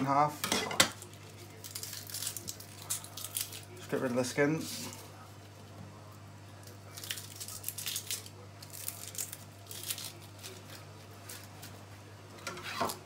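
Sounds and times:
onion skin crackling and tearing: 1.0 - 5.1, 6.6 - 11.8.

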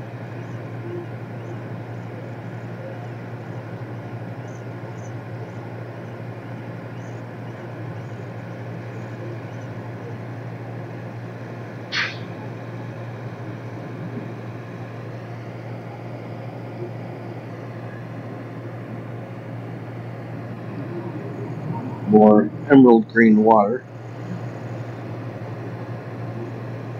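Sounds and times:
ferry engines droning: 0.0 - 26.9
sharp high-pitched sound: 11.9 - 12.4.

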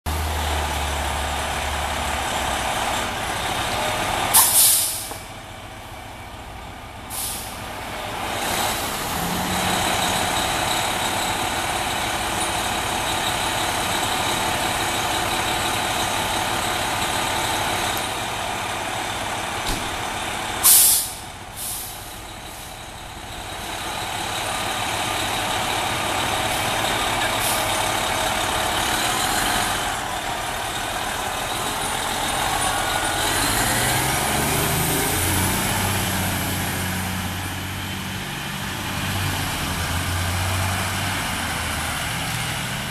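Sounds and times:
diesel engine running: 0.1 - 42.9
air brake hissing: 4.3 - 5.3, 7.1 - 7.7, 20.6 - 22.8.

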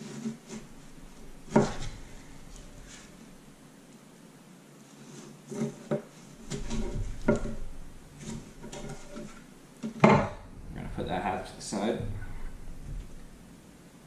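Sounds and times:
knife cutting melon on a board: 1.4 - 3.1.

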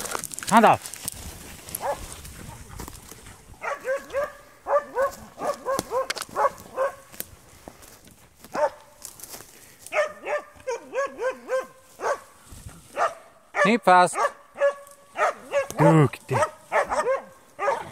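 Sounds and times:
rustles and clicks: 0.0 - 4.4
dog yelping barks: 1.8 - 2.0, 3.6 - 7.1, 8.5 - 8.9, 9.9 - 12.3, 13.0 - 17.9.

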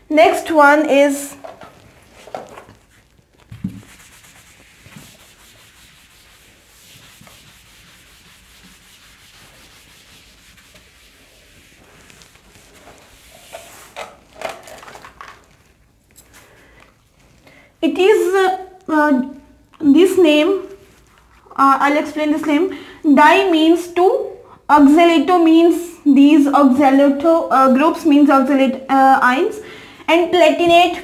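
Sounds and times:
duster scrubbing a whiteboard: 1.4 - 14.4.

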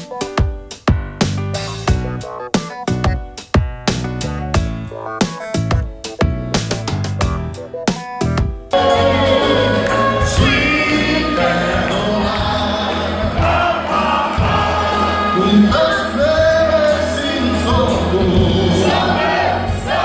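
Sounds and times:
steady bass: 0.9 - 20.0
singing voices: 8.8 - 20.0.

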